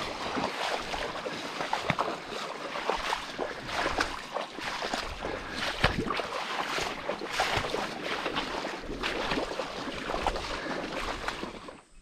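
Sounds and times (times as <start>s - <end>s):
footsteps splashing through water: 0.0s - 12.0s.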